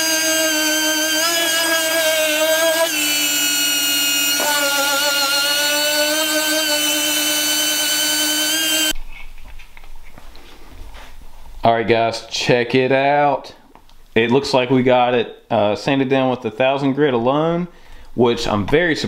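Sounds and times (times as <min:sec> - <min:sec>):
air sander whine: 0:00.0 - 0:09.0.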